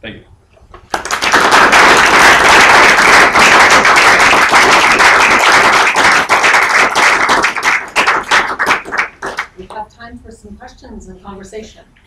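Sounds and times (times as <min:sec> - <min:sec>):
audience applauding: 0:00.9 - 0:09.6.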